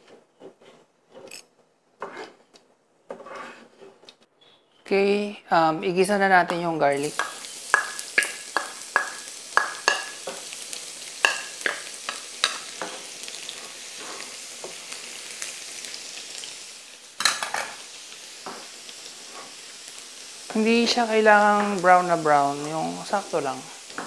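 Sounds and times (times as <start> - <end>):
garlic sizzling in oil: 5.7 - 24.0
spatula knocking on a pan: 7.2 - 10.4, 11.2 - 13.0.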